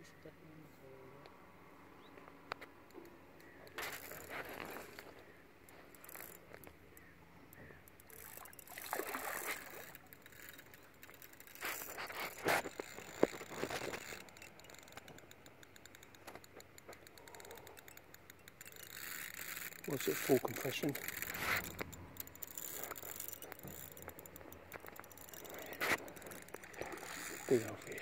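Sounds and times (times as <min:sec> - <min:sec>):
faint fast ticking: 0:05.6 - 0:08.9, 0:09.6 - 0:28.0
water splashing and swirling: 0:08.1 - 0:14.2, 0:24.8 - 0:28.0.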